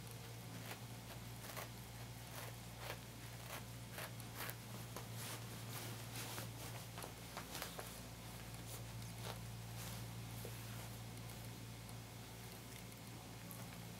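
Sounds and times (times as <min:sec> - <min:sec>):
steady low hum: 0:00.0 - 0:13.9
cat claws scratching fabric toy: 0:00.5 - 0:10.0.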